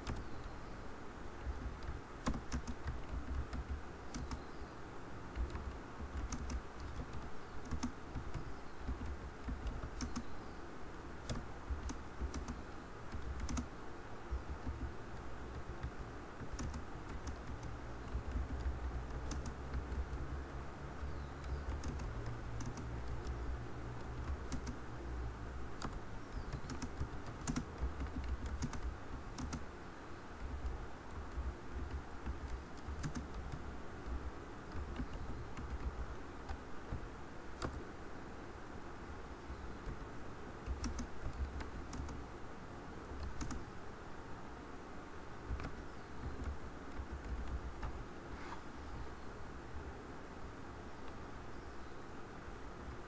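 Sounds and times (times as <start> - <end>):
steady low hum: 0.0 - 53.0
keyboard key clicks: 1.5 - 4.4, 5.3 - 10.3, 14.3 - 20.2, 25.8 - 29.6, 30.4 - 37.0, 39.8 - 42.2, 43.2 - 43.6, 45.5 - 48.0.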